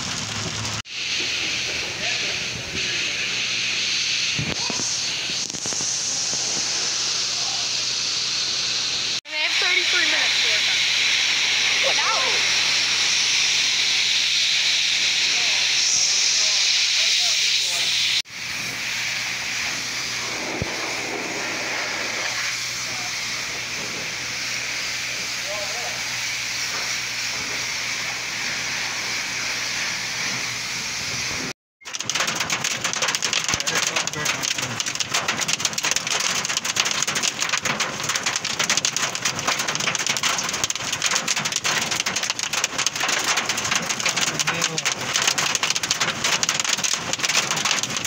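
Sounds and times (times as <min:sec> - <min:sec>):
rain and hail on vehicle roof: 0:00.0 - 0:00.9, 0:09.2 - 0:10.6, 0:31.4 - 0:48.0
pressure washer spraying water: 0:00.0 - 0:48.0.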